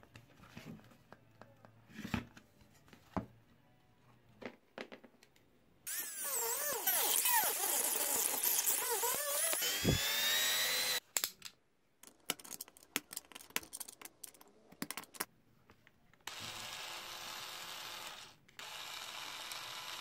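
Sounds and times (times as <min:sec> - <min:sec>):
rotary tool grinding plastic: 0:05.9 - 0:11.0
small electric motor running: 0:05.9 - 0:11.0, 0:16.3 - 0:20.0.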